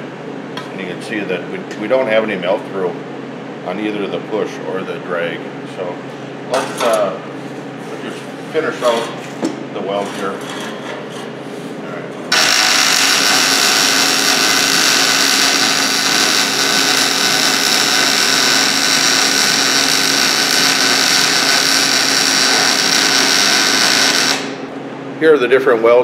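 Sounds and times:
welding arc frying crackle: 0:12.3 - 0:24.7.

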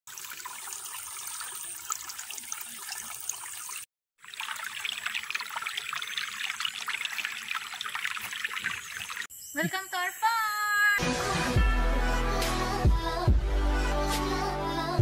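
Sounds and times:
stream babbling over stones: 0:00.1 - 0:09.3.

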